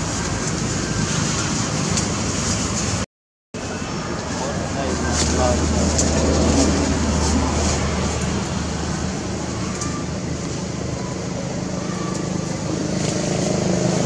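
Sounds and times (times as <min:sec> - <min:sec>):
engine humming: 0:03.6 - 0:14.0.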